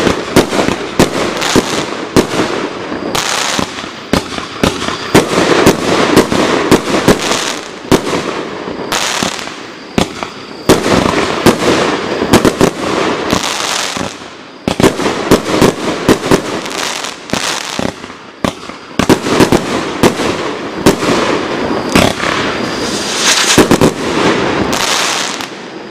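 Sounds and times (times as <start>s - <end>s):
hissing crackling firework stars: 0.0s - 25.9s
firework launch and break reports: 20.8s - 25.9s.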